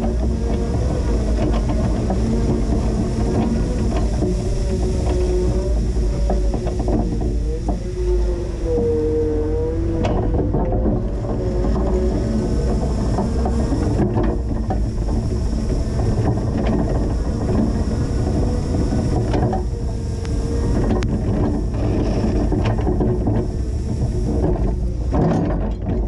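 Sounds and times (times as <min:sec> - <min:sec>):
forklift engine running: 0:00.0 - 0:26.0
rattles and knocks of plow: 0:00.0 - 0:26.0.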